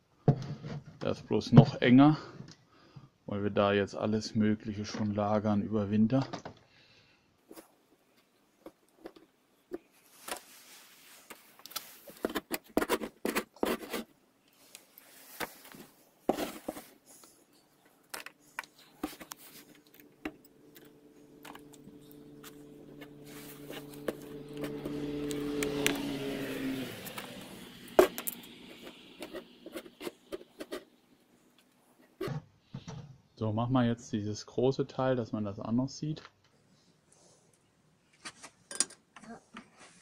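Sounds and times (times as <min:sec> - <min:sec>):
metal scraper scraping wax: 0:11.4 - 0:17.0, 0:18.8 - 0:31.0
steady low hum: 0:18.3 - 0:32.1.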